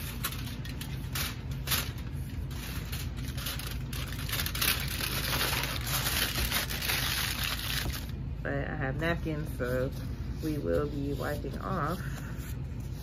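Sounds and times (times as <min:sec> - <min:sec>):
aluminium foil crinkling: 0:00.0 - 0:08.2
steady low hum: 0:00.0 - 0:13.0.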